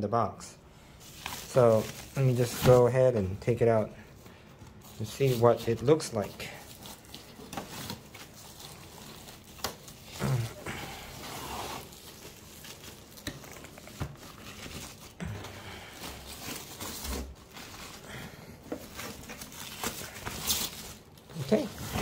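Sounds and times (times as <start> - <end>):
plastic wrapping rustling: 1.0 - 22.0.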